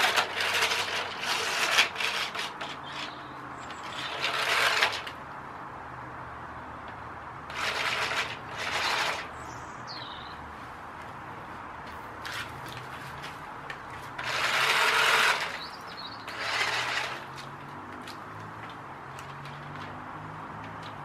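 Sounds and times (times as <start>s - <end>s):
toy boat motor whirring: 0.0s - 5.2s, 7.5s - 9.3s, 14.2s - 17.5s.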